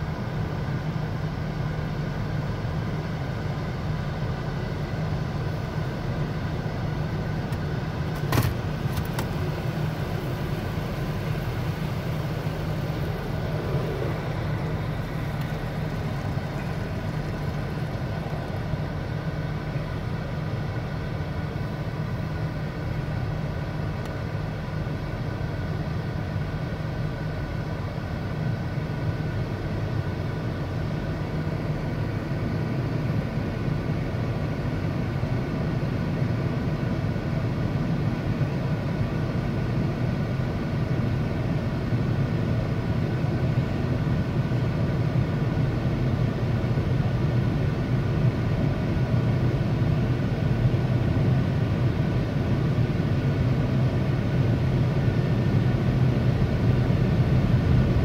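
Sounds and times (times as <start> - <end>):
car wash machinery rumbling: 0.0 - 33.8.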